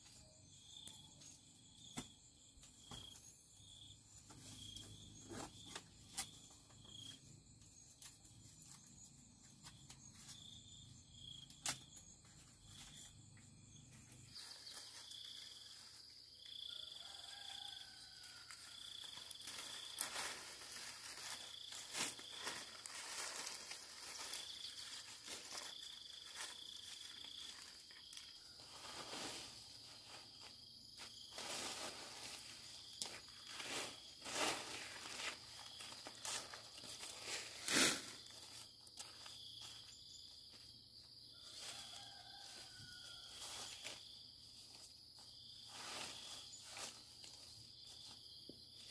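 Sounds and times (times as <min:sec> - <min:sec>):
insects chirping in high pulses: 0:00.0 - 0:48.9
high insect drone: 0:10.5 - 0:48.9.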